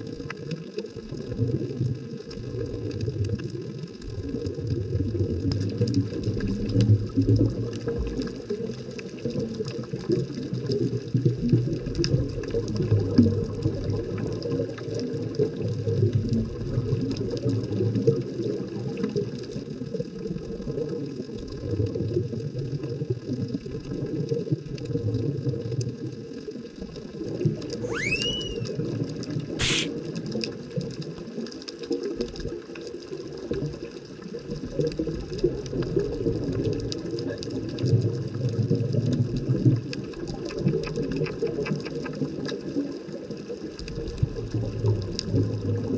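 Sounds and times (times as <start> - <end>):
underwater rumble of moving water: 0.0 - 27.8, 30.5 - 45.9
rising bending tone: 27.8 - 28.7
faint crackling clicks: 34.8 - 43.1.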